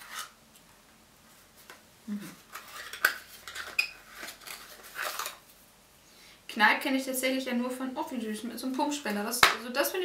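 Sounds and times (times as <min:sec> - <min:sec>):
plastic tube rustling: 0:01.3 - 0:05.6.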